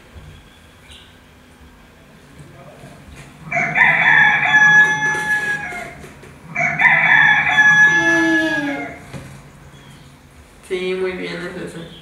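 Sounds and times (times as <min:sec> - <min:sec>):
rooster crowing: 0:03.4 - 0:09.2.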